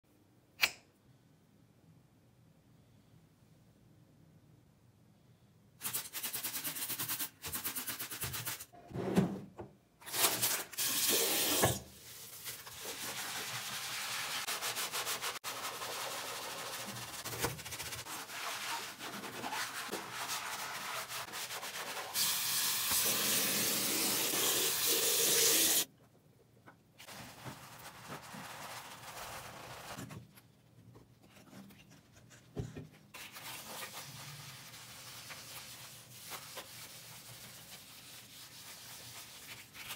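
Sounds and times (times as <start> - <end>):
sponge scrubbing ceramic basin: 11.4 - 22.4, 27.0 - 30.0, 33.2 - 39.9.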